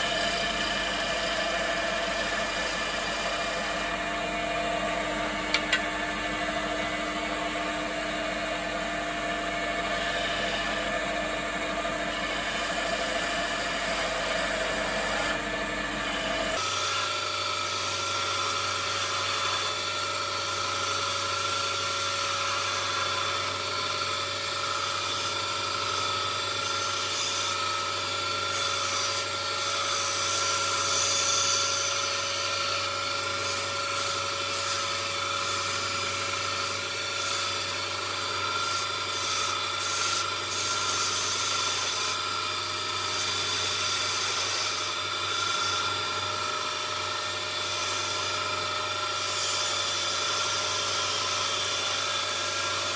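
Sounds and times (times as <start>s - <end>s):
gouge scraping spinning wood: 0.0s - 52.9s
wood lathe motor humming: 0.0s - 52.9s.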